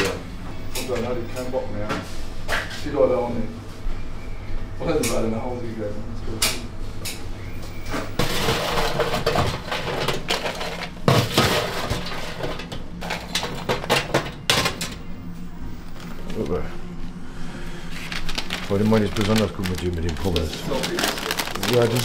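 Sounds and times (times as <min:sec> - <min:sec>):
food scraping and rustling: 0:17.9 - 0:22.0.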